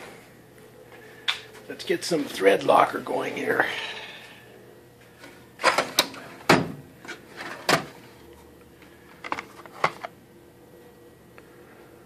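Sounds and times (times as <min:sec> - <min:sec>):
metal drawers opening and shutting: 0:05.6 - 0:08.0.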